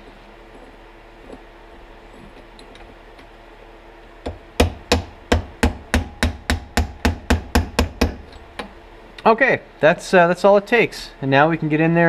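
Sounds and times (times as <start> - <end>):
hammer tapping metal punch: 4.2 - 8.7.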